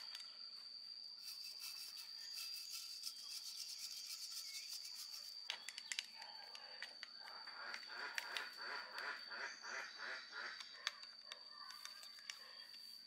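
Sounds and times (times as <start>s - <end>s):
brush scrubbing metal casing: 1.2s - 5.4s.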